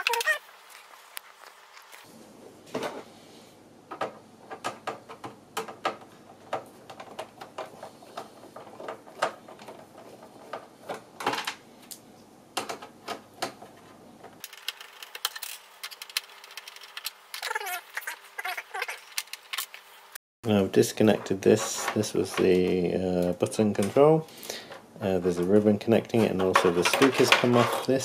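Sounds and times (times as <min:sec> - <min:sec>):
plastic parts and tools clattering: 0:03.9 - 0:11.6, 0:12.6 - 0:19.8, 0:25.4 - 0:28.0.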